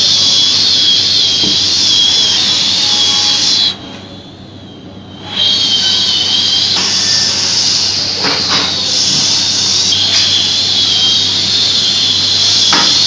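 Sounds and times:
saw blade whining: 0.0s - 13.0s.

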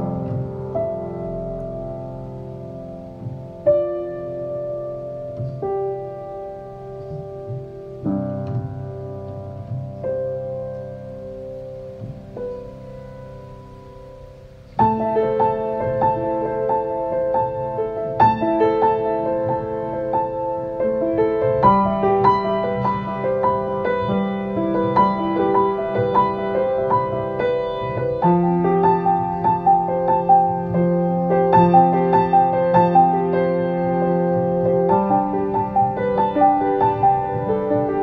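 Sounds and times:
solo piano music: 0.0s - 38.0s.

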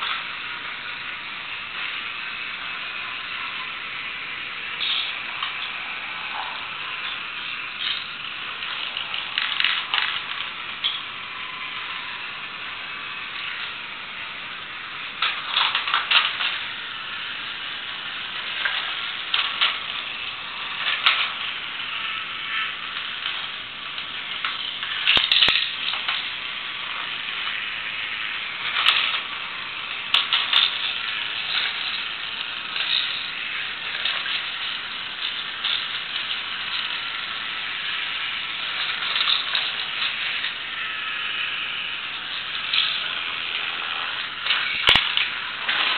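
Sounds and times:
toy motor and gears buzzing: 0.0s - 45.9s
plastic clattering and rattling: 7.8s - 11.0s, 15.2s - 16.6s, 18.5s - 20.2s, 23.2s - 26.4s, 28.6s - 29.3s, 29.9s - 37.3s, 38.5s - 40.6s, 44.0s - 45.9s.

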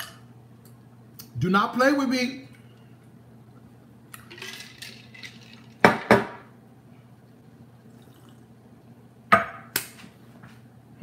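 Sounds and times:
thick drink pouring: 4.2s - 5.8s, 7.8s - 8.5s.

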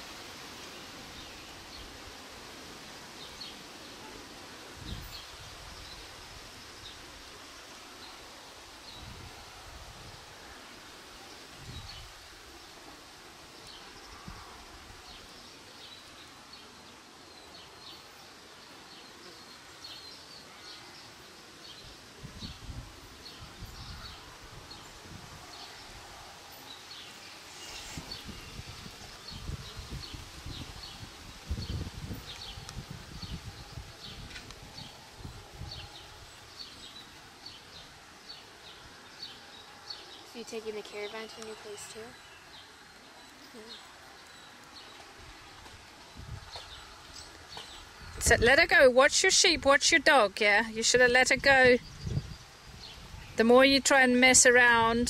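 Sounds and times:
steady outdoor hiss: 0.0s - 55.0s
wind buffeting microphone: 4.7s - 6.6s, 8.9s - 10.4s, 11.5s - 12.4s, 22.2s - 26.3s, 27.7s - 36.6s, 45.3s - 50.0s, 50.9s - 53.6s.

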